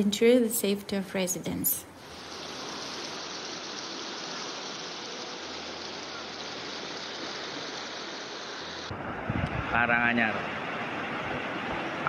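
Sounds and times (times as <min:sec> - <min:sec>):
floodwater rushing: 0:02.0 - 0:08.9.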